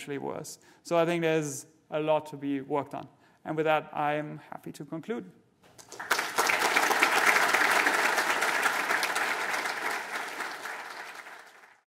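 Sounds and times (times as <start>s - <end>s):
audience applauding: 5.7s - 11.9s.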